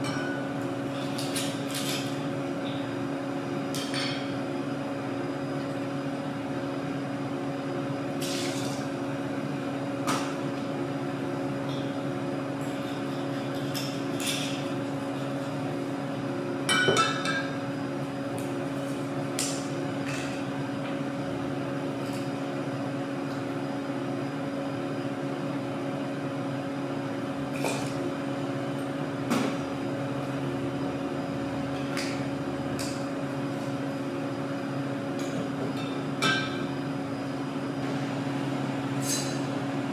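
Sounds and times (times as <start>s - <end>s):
steady electrical hum: 0.0s - 39.9s
glassware clinking: 16.7s - 17.5s.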